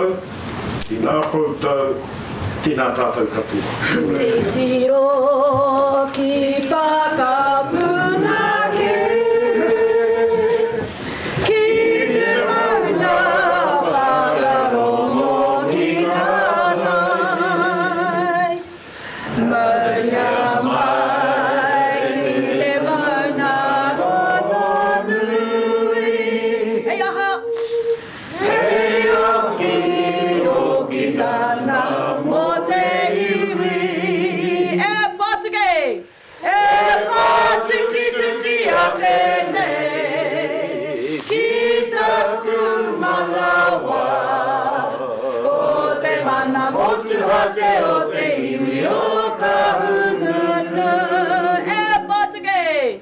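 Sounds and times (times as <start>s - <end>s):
group of people singing: 3.8s - 35.2s, 36.3s - 53.0s.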